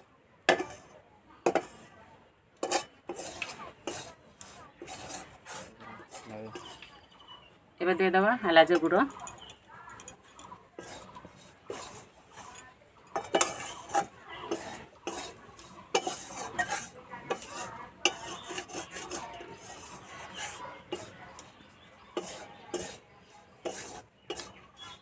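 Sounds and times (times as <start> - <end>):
metal spatula scraping wok: 0.0 - 1.9, 2.6 - 7.0, 10.1 - 25.0
spatula clinking against pan: 12.5 - 19.9, 22.2 - 23.0, 23.6 - 24.6.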